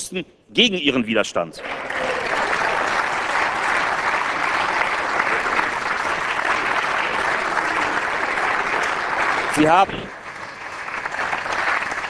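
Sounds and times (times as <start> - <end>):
crowd applauding: 1.6 - 12.0.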